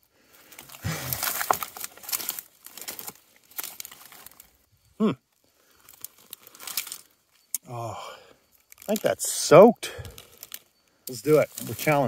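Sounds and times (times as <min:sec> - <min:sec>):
dry grass rustling and crackling: 0:00.0 - 0:07.5, 0:08.4 - 0:09.4, 0:10.0 - 0:12.0
person grunting: 0:00.8 - 0:01.2, 0:05.0 - 0:05.2
person humming: 0:05.0 - 0:05.2.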